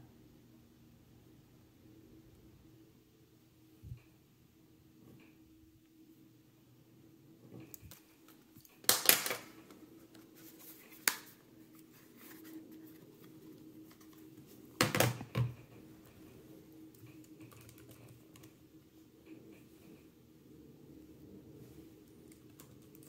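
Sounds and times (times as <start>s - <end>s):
plastic laptop clicks and clacks: 8.6s - 9.5s
keyboard tapping: 17.1s - 18.6s.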